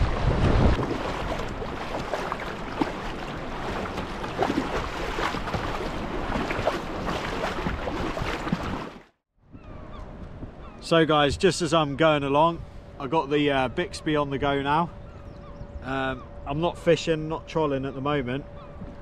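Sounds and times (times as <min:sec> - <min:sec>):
rushing water wash: 0:00.0 - 0:09.0
water splashing against kayak hull: 0:00.0 - 0:09.2.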